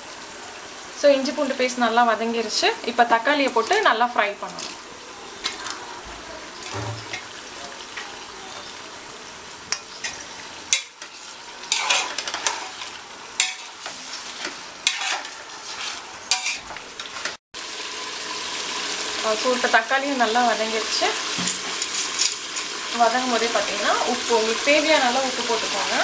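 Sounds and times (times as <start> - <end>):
tomatoes sizzling in hot oil: 0.0 - 26.0
spatula scraping a metal pot: 9.9 - 17.4.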